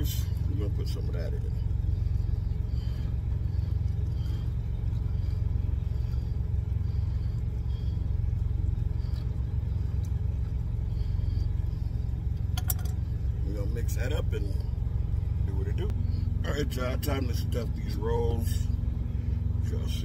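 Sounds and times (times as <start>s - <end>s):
truck engine idling: 0.0s - 20.0s.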